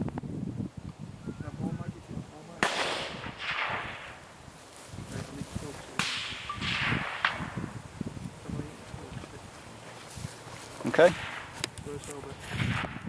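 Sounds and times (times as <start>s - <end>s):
rifle shot with echo: 2.6s - 4.2s, 5.9s - 7.7s, 11.0s - 11.6s, 12.4s - 13.0s.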